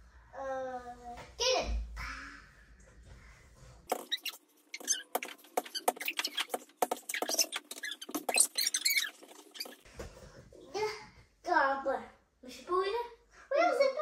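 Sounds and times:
sped-up children's voices: 0.2 - 3.5, 10.6 - 14.0.

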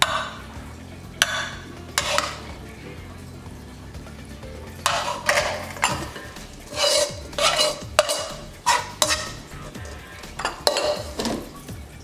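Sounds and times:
spoon scraping bowl and dish: 1.2 - 2.6, 4.7 - 11.7.

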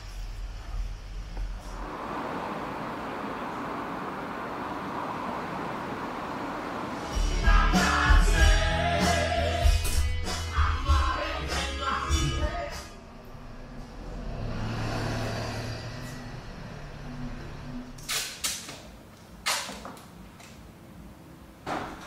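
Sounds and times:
music: 7.0 - 13.6.

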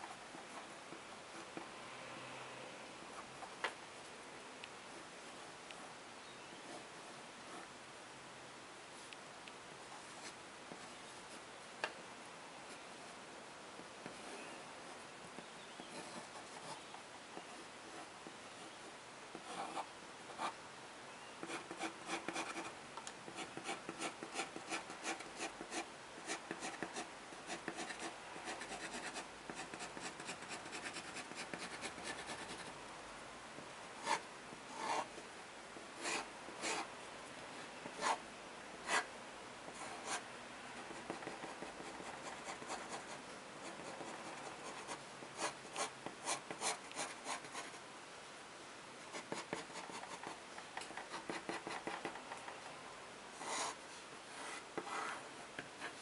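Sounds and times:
pen scratching on paper: 23.3 - 32.7, 34.8 - 35.1, 36.0 - 36.9, 37.8 - 38.2, 49.1 - 50.3, 50.9 - 52.3, 53.4 - 53.8, 54.4 - 55.2.

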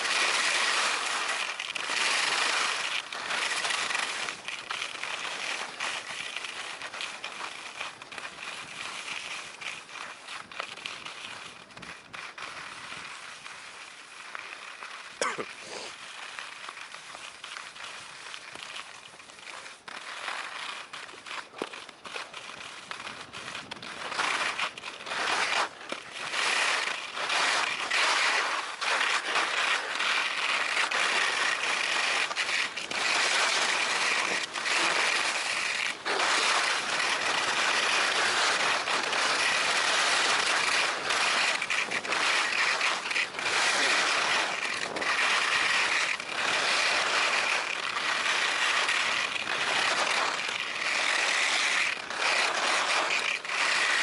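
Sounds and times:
skis scraping over snow: 0.0 - 54.0.

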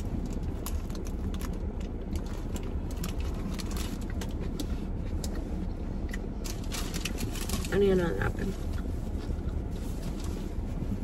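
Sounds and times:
low steady hum: 0.0 - 11.0
chewing with mouth clicks: 0.2 - 7.2.

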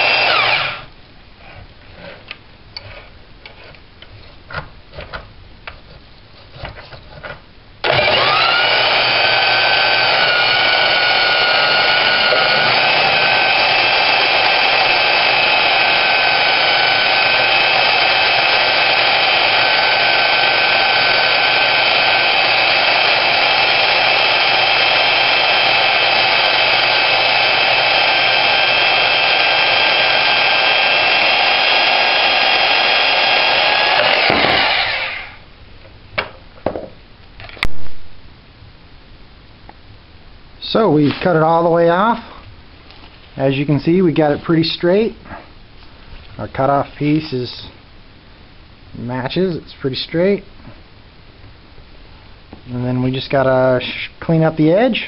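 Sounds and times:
band saw cutting steel: 0.0 - 0.9, 7.9 - 35.4.

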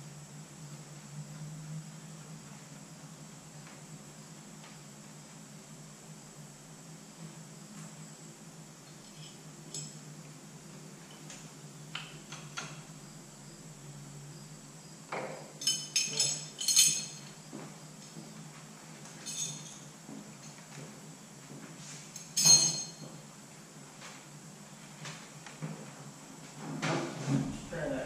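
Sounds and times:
steady low hum: 0.0 - 28.0
metal tools clinking against steel: 9.0 - 10.0, 15.6 - 17.4, 19.2 - 20.6, 22.1 - 23.1.

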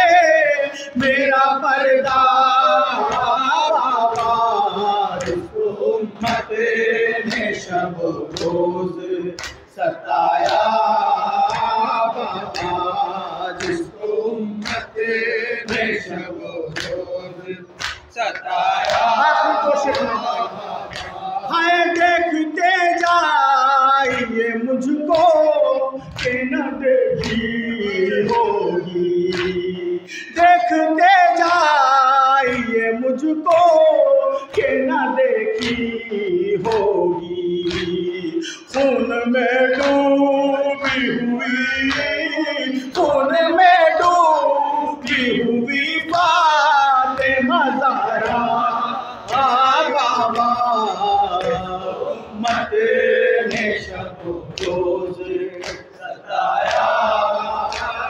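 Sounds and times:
man singing a lament: 0.0 - 58.0
men singing in chorus: 0.0 - 58.0
chest-beating slaps: 20.8 - 21.2.

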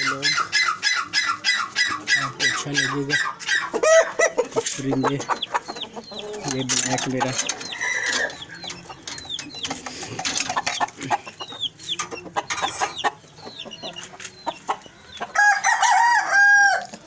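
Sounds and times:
chicken clucks: 0.0 - 17.0
rooster crowing: 15.4 - 16.9.

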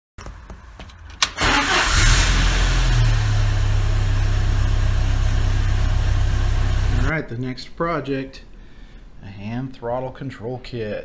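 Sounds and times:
car engine starting and idling: 1.0 - 7.1.

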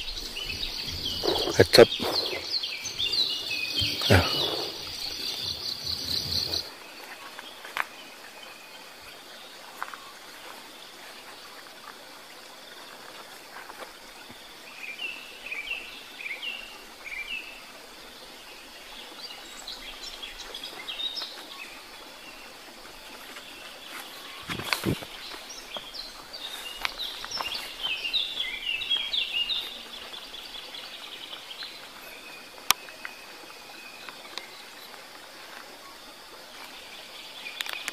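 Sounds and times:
bird chirping: 0.0 - 7.1
insects trilling: 0.0 - 37.9.

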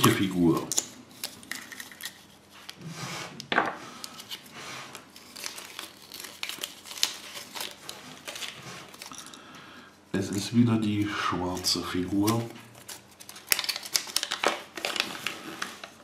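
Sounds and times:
paper leaflet crinkling: 4.1 - 9.3, 10.2 - 16.0.

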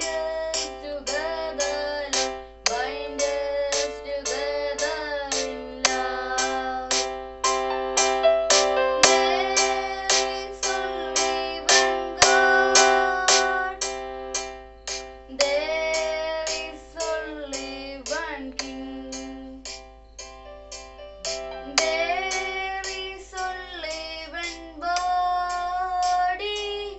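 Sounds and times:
boy singing: 0.0 - 7.0, 9.0 - 13.9, 15.3 - 19.6, 21.6 - 26.9.

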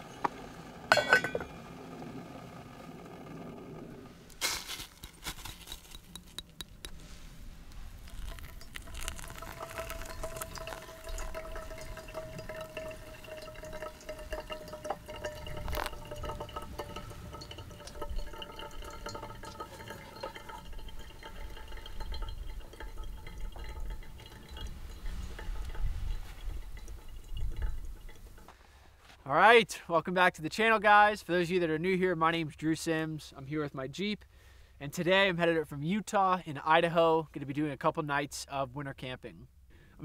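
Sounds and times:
coffee trickling and dripping: 4.3 - 28.6
water pouring from kettle: 7.6 - 28.5.

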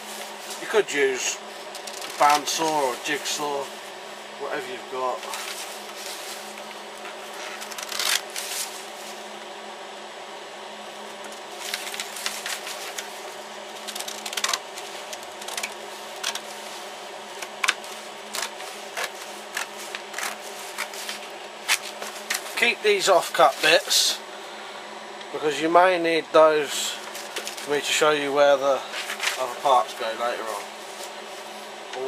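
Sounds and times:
steady low hum: 0.0 - 32.0
paper rustling: 5.1 - 9.2, 11.2 - 22.8, 27.0 - 27.8, 28.9 - 31.7.

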